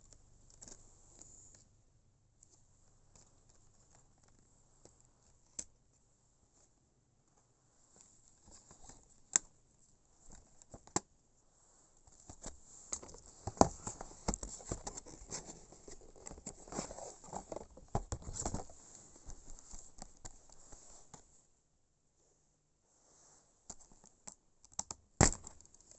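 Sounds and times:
packaging rustling: 0:12.2 - 0:20.6.

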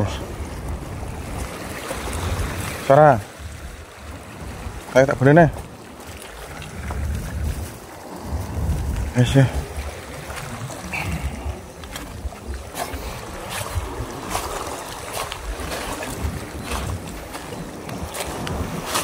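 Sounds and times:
sea water washing on rocks: 0:00.0 - 0:19.0
wind buffeting microphone: 0:00.0 - 0:19.0.

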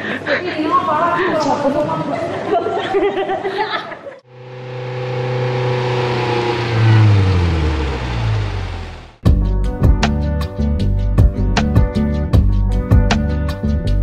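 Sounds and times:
car driving past: 0:04.3 - 0:09.2.

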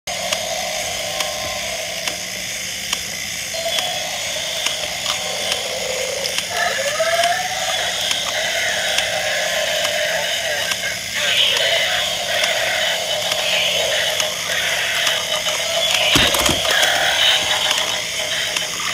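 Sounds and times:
electronic toy roar: 0:00.1 - 0:18.6
toy gear motors whirring: 0:00.3 - 0:18.0.

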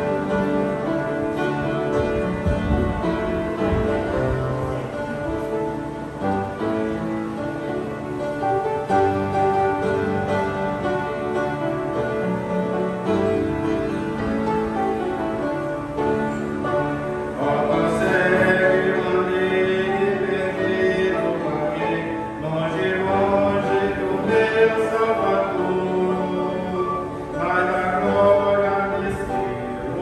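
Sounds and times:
keyboard accompaniment: 0:00.0 - 0:30.0
man singing a hymn: 0:16.7 - 0:30.0.

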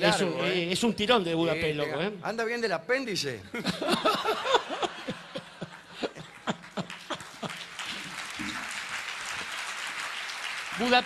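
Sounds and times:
audience laughing: 0:03.6 - 0:08.0
audience applause: 0:05.3 - 0:11.0.

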